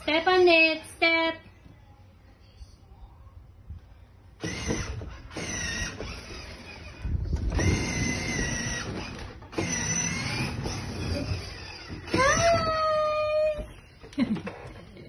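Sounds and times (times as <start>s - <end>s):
toy excavator motor whining: 4.4s - 13.8s.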